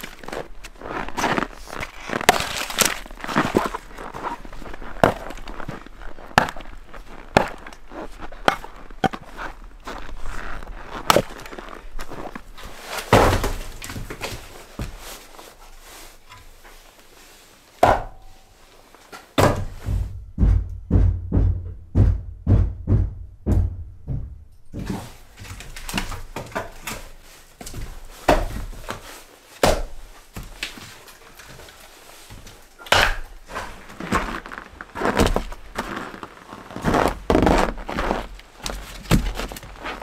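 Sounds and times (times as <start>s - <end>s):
firewood thunks and knocks: 13.0s - 15.0s, 17.8s - 18.3s, 19.4s - 29.0s, 29.6s - 30.8s, 32.4s - 34.4s, 35.0s - 35.7s, 38.6s - 40.0s.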